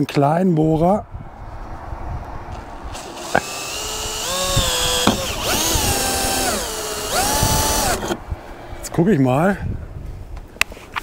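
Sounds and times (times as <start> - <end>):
electric drill motor whine: 2.9 - 8.2.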